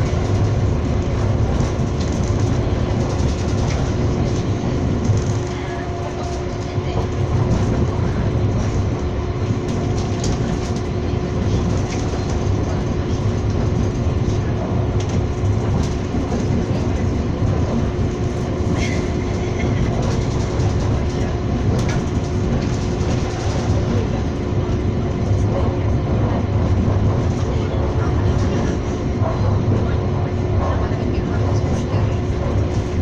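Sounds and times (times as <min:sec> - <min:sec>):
train running rumble: 0:00.0 - 0:33.0.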